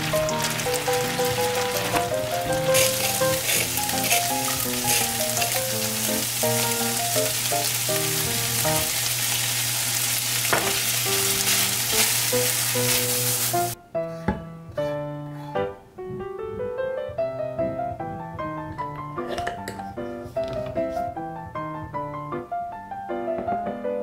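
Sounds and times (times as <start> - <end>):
background music with simple melody: 0.0 - 8.9, 12.4 - 24.0
fish sizzling in a frying pan: 0.0 - 13.8.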